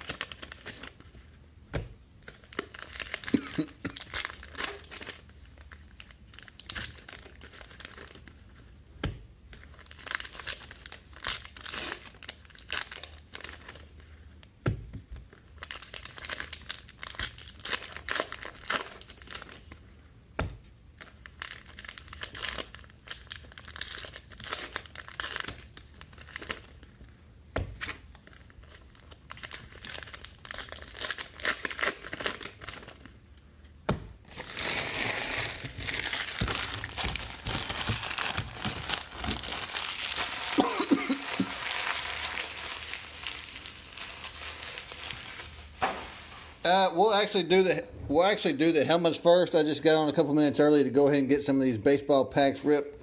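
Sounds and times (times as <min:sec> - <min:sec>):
wrappers torn and crinkled: 0:00.0 - 0:01.2, 0:02.3 - 0:08.4, 0:09.6 - 0:14.0, 0:15.4 - 0:19.8, 0:20.9 - 0:27.0, 0:27.8 - 0:33.3, 0:34.3 - 0:46.6.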